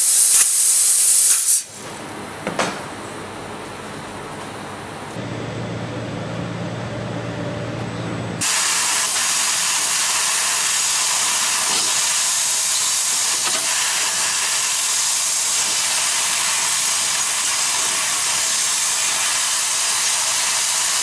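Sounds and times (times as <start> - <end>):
laser cutter gas hiss: 0.0 - 1.8, 8.4 - 21.0
low machine hum: 1.8 - 8.4.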